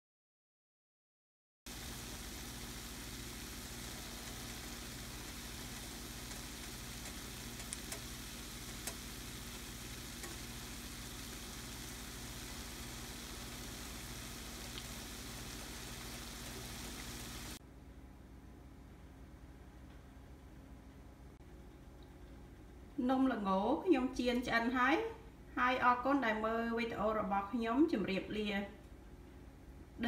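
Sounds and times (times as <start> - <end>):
dough sizzling in hot oil: 1.7 - 17.6.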